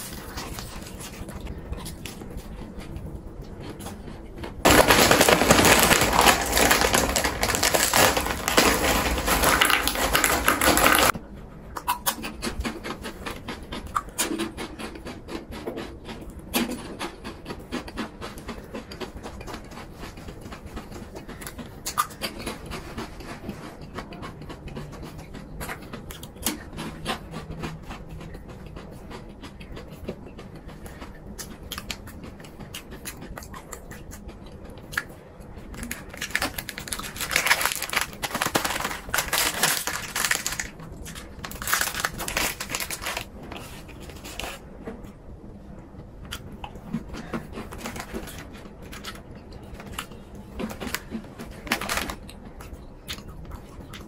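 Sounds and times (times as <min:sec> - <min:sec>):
crunching fried food: 0:00.0 - 0:11.2, 0:11.8 - 0:44.7, 0:46.3 - 0:54.0.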